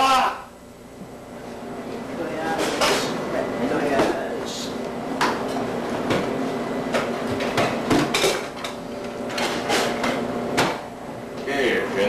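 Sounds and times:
pots and utensils clattering: 7.0 - 10.8.

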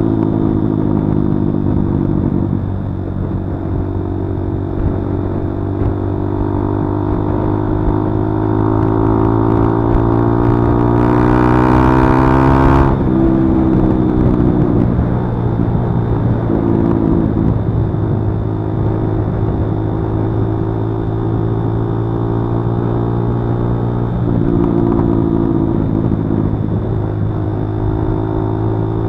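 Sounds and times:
motorcycle engine accelerating: 0.0 - 29.0.

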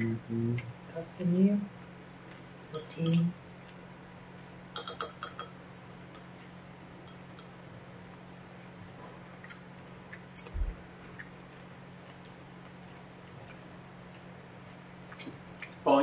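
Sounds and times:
faint low hum: 0.0 - 16.0
utensils clinking on ceramic bowls: 2.7 - 3.4, 4.8 - 6.4.

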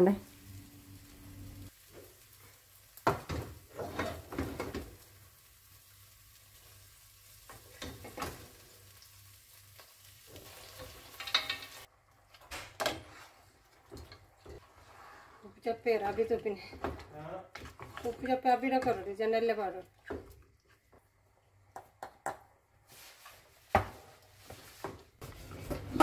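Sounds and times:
faint sizzle: 0.0 - 21.5, 22.8 - 26.0
wooden spoon scraping metal pots: 3.7 - 4.8, 12.8 - 20.4.

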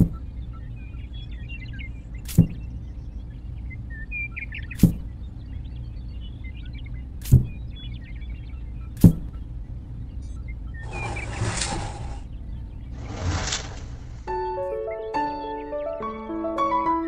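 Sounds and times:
sharp knocks of clay panels: 0.0 - 0.2, 2.3 - 2.6, 4.8 - 5.1, 7.2 - 7.6, 9.0 - 9.3
faint birdlike chirps: 0.0 - 14.2
steady low rumble: 0.0 - 14.3.

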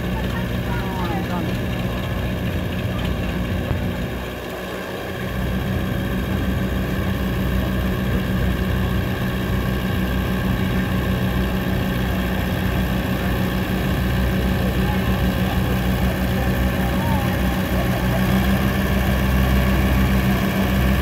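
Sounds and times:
tractor engine under load: 0.0 - 21.0.

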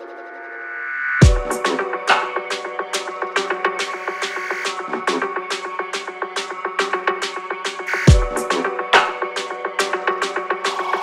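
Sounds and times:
dubstep percussive hits: 7.9 - 9.1.

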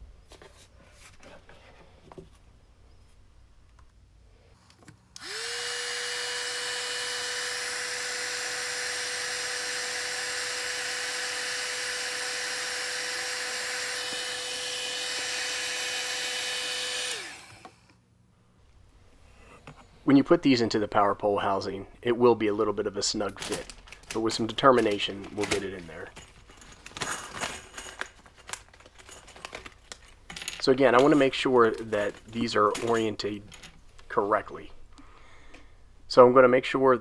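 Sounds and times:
heat gun fan whine: 5.1 - 18.0.

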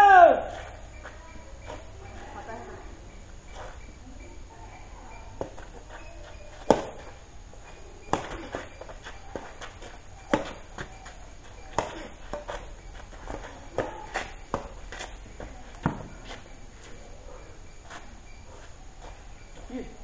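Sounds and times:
rackets striking shuttlecock: 5.3 - 17.0
shoes scuffing on dirt: 5.4 - 17.0.

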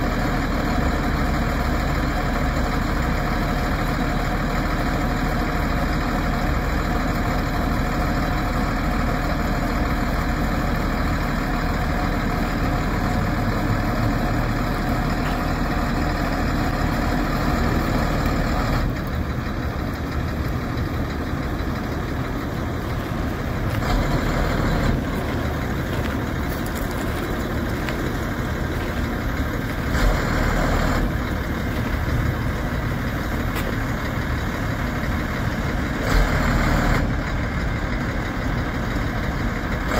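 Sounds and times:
truck engine running: 0.0 - 39.9.

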